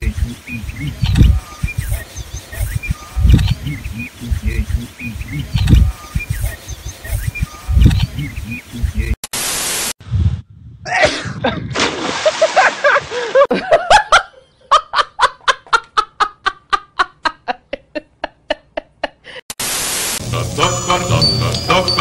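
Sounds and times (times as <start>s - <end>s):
static hiss: 0.0s - 10.0s, 19.5s - 22.0s
woman laughing: 12.3s - 19.4s.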